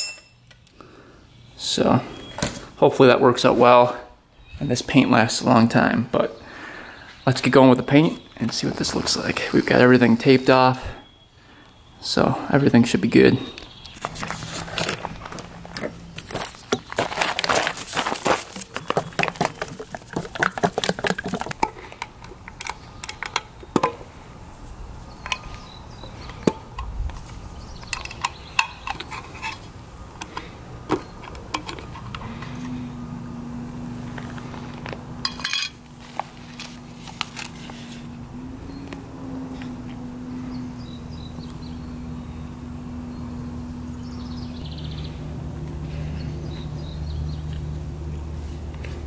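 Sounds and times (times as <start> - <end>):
steady low hum: 0.0 - 49.0
shoes crunching on gravel: 14.0 - 20.2.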